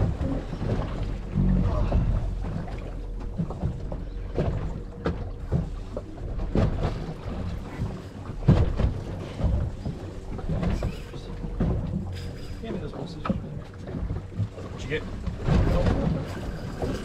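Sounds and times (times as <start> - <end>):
knocks and thumps: 0.0 - 12.2
sea water washing against hull: 0.0 - 17.0.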